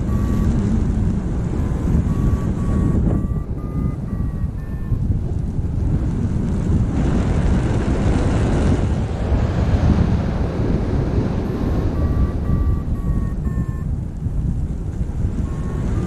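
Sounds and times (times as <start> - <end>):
short electronic beeps: 0.0 - 5.1, 11.2 - 13.9, 15.4 - 16.0
wind rushing over microphone: 0.0 - 16.0.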